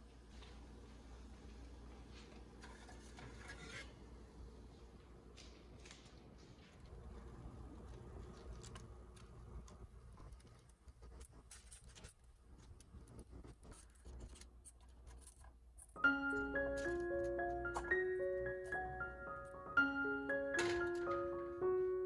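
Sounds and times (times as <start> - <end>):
tongs clicking and foil crinkling: 8.2 - 16.0
piano music: 16.0 - 22.0.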